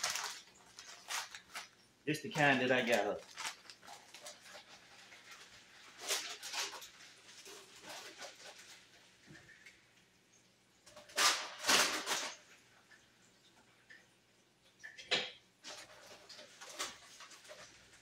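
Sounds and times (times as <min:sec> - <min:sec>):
plastic bag crinkling: 0:00.0 - 0:09.7, 0:10.9 - 0:12.6, 0:15.6 - 0:18.0.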